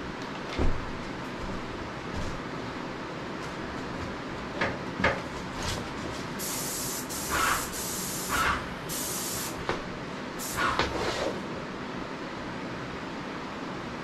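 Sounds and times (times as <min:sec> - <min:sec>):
paint sprayer gun hissing: 0:06.4 - 0:09.6, 0:10.4 - 0:10.8.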